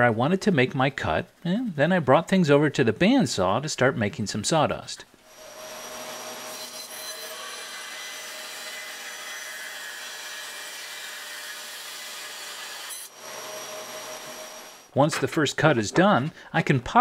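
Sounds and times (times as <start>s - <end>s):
bandsaw cutting wood: 5.3s - 14.9s.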